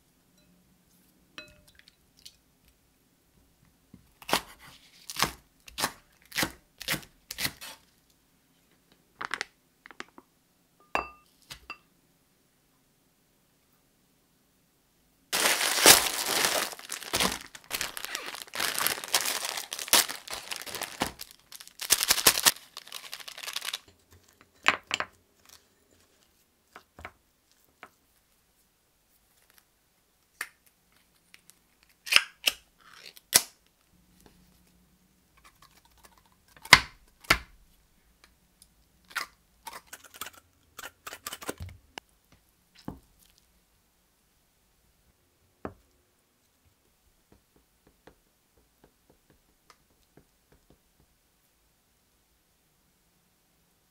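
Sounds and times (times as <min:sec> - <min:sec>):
plastic packaging crinkling and tearing: 0:15.4 - 0:23.9.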